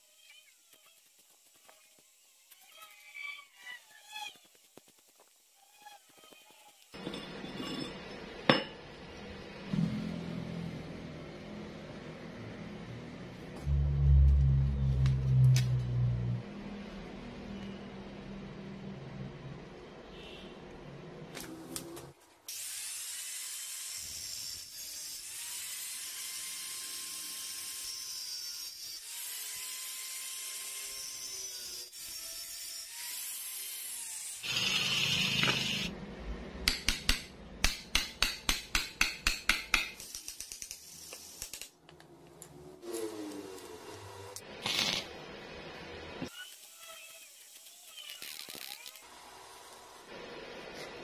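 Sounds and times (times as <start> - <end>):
angle grinder cutting steel rod: 22.9 - 35.9.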